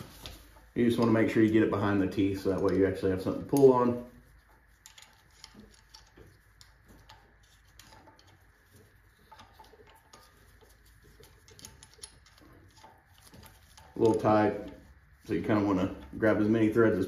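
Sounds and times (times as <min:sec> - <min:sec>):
small metal clicks and taps: 0:04.8 - 0:15.0.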